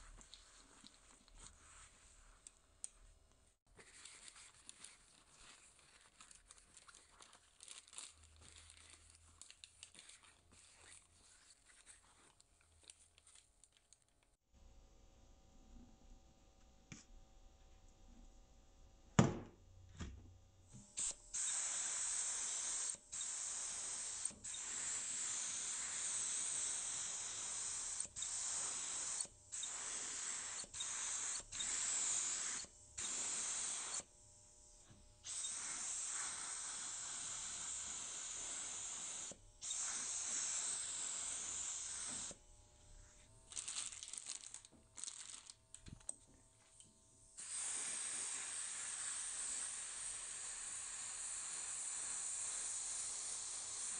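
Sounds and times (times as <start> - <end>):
small crackles: 3.7 - 14.4, 43.5 - 46.8
paint spray gun hissing: 21.0 - 34.1, 35.2 - 42.4, 47.4 - 53.9.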